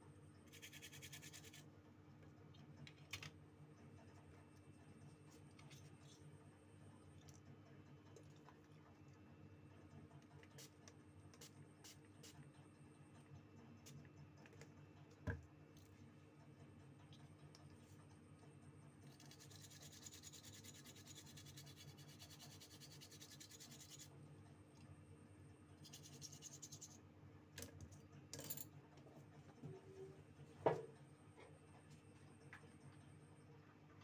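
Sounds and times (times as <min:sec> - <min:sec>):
brush scrubbing circuit board: 0:00.5 - 0:01.6, 0:19.1 - 0:24.1, 0:25.8 - 0:27.0.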